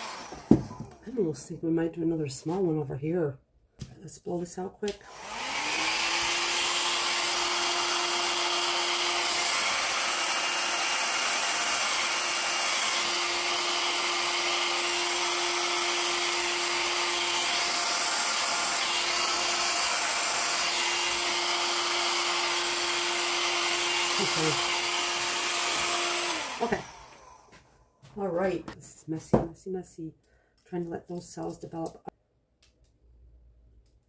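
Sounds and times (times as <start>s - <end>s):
hair dryer running: 0.0s - 1.0s, 4.9s - 27.7s.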